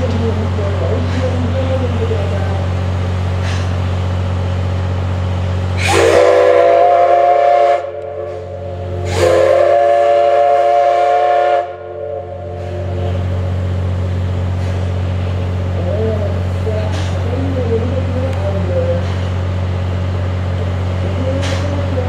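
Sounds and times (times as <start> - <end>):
steam whistle blasts: 5.8 - 13.0.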